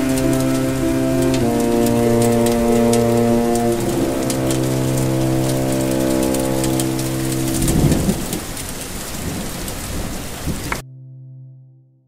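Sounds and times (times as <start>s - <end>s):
humming drone: 0.0s - 8.4s
low thunder rumble: 0.0s - 10.8s
steady rain pattering: 0.0s - 10.8s.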